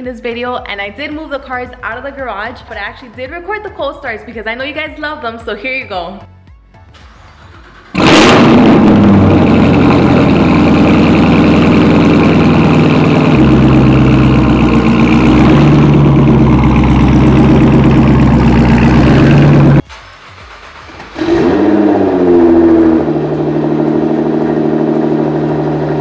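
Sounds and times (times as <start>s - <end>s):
car engine idling: 7.0s - 26.0s.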